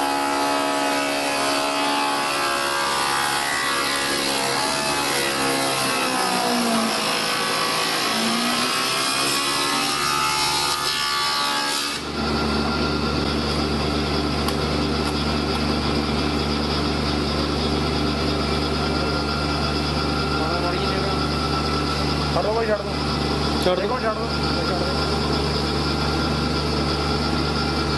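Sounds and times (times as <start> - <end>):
spindle moulder cutting wood: 0.0 - 12.1
machine humming: 0.0 - 27.9.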